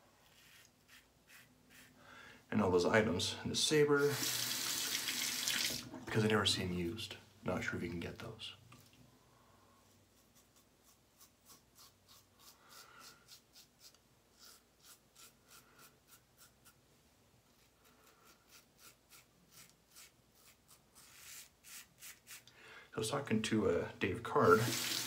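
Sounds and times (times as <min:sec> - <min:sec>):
razor scraping stubble: 0:00.3 - 0:01.9, 0:10.2 - 0:16.8, 0:17.6 - 0:22.5.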